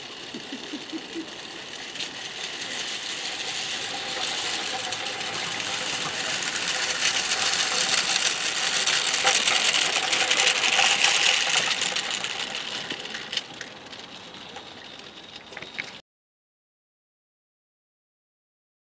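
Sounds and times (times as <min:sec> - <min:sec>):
steam hissing: 0:00.0 - 0:13.0
wheels clattering on rails: 0:00.0 - 0:16.0.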